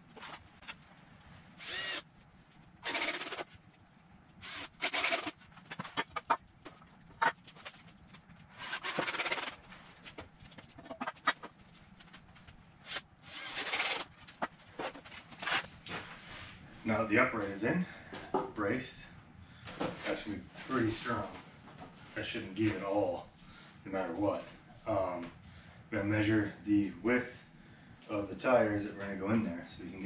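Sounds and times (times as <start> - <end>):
cordless drill whirring: 1.6 - 2.0, 2.8 - 3.5, 4.4 - 5.3, 12.9 - 14.0.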